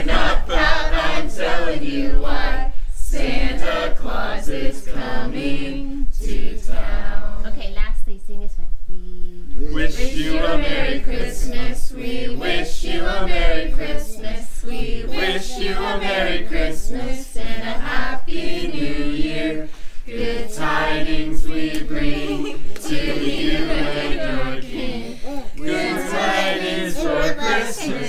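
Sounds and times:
group singing a carol unaccompanied: 0:00.0 - 0:07.6, 0:09.6 - 0:28.0.

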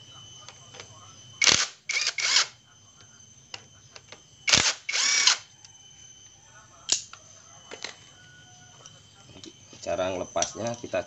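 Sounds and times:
cordless drill spinning: 0:01.4 - 0:02.5, 0:04.5 - 0:05.4.

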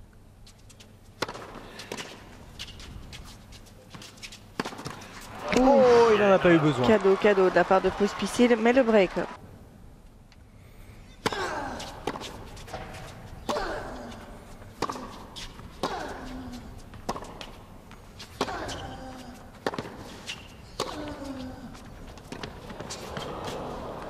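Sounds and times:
racket hitting tennis ball: 0:01.2 - 0:02.2, 0:04.6 - 0:05.8, 0:14.8 - 0:16.3, 0:17.0 - 0:17.6, 0:19.6 - 0:20.1.

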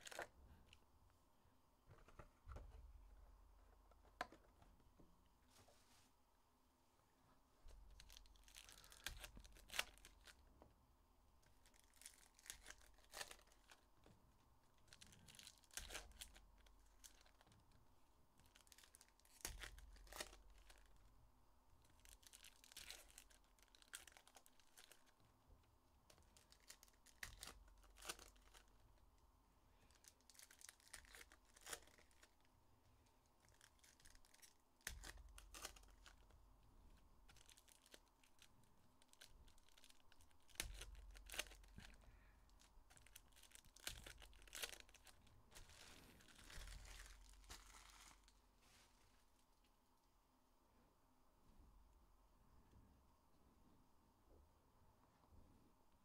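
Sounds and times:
handling of cards: 0:11.5 - 0:13.9, 0:37.2 - 0:49.3
foil wrappers tearing and crinkling: 0:11.6 - 0:13.8, 0:18.4 - 0:21.0, 0:22.0 - 0:25.1, 0:26.4 - 0:28.7, 0:30.0 - 0:32.4, 0:37.3 - 0:42.0, 0:42.9 - 0:48.4.

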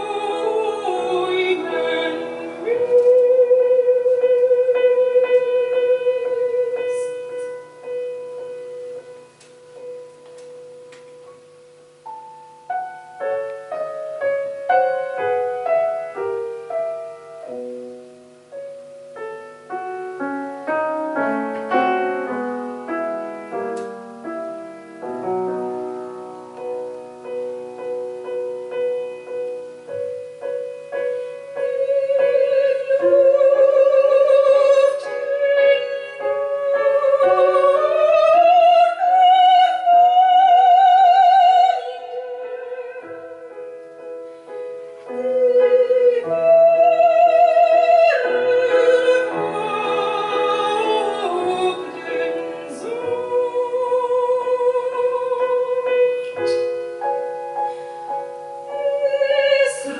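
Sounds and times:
soprano singing with vibrato: 0:00.0 - 0:09.2, 0:25.6 - 0:43.8, 0:45.0 - 0:57.5, 0:58.1 - 0:59.9
grand piano playing classical music: 0:00.0 - 0:59.9.

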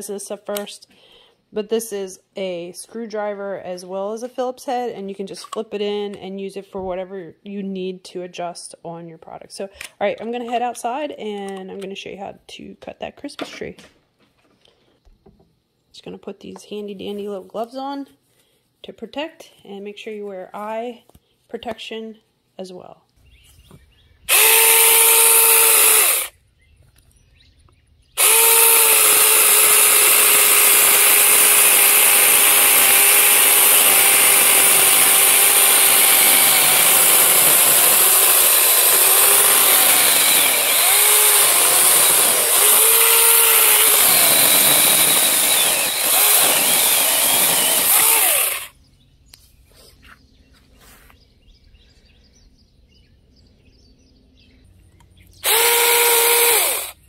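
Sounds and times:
mini chainsaw cutting wood: 0:24.3 - 0:26.3, 0:28.2 - 0:48.8, 0:55.4 - 0:57.0.

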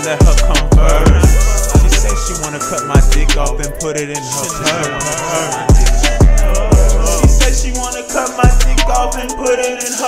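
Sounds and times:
hip-hop beat melody: 0:00.0 - 0:10.0
deep bass kicks: 0:00.2 - 0:03.7, 0:05.7 - 0:07.9.

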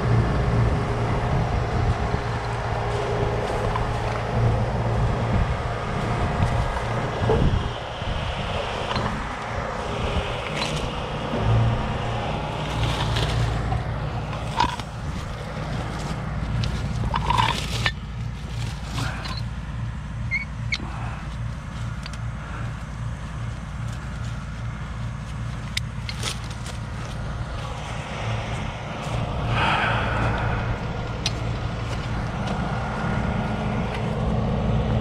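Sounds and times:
diesel engine idling: 0:00.0 - 0:35.0
rustling through snowy brush: 0:08.3 - 0:32.7
rigging clicks and clinks: 0:15.9 - 0:19.5.

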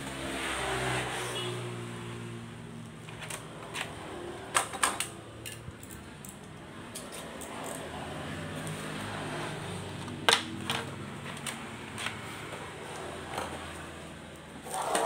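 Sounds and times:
toy gun plastic clicks and knocks: 0:04.6 - 0:07.8.

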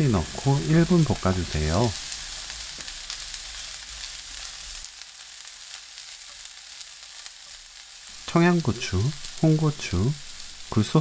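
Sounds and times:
celery sizzling in oil: 0:00.0 - 0:11.0.

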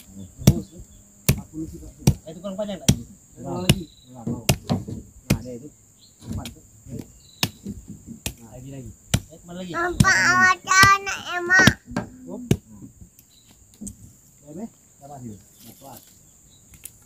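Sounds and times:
insects droning: 0:00.0 - 0:17.0
machete chopping roots: 0:01.2 - 0:05.6, 0:06.3 - 0:08.5, 0:09.1 - 0:11.0
child calling out: 0:09.7 - 0:11.9.

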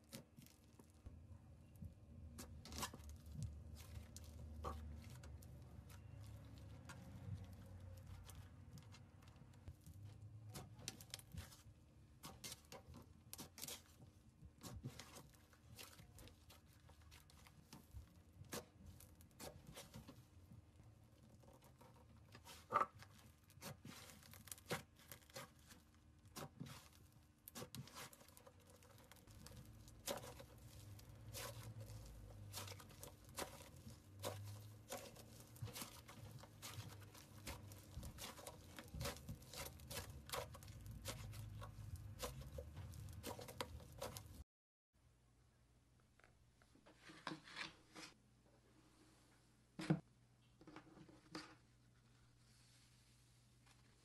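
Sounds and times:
slime crackling and popping: 0:22.9 - 0:44.4.

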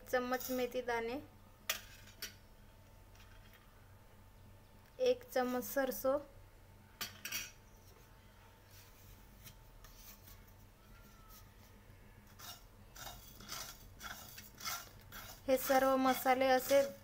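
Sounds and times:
spatula scraping spices in pan: 0:00.2 - 0:00.8, 0:12.3 - 0:17.0.

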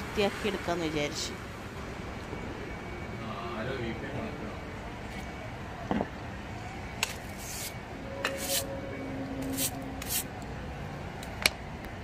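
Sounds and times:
brush sweeping wet floor: 0:09.4 - 0:10.3.

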